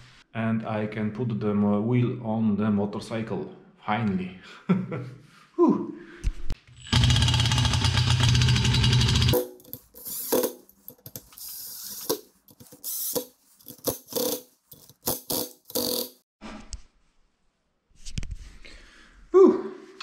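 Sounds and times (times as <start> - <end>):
cordless power driver whirring: 6.8 - 9.4.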